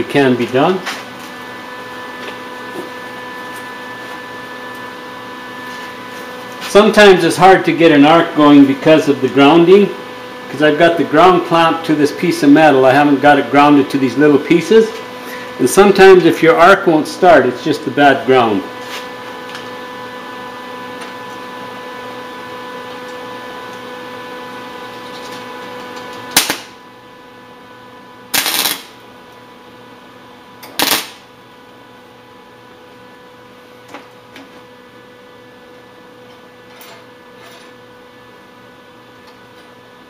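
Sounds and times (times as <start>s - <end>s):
welder humming: 0.0s - 40.0s
welding arc bursts: 26.3s - 26.8s, 28.3s - 29.0s, 30.7s - 31.3s.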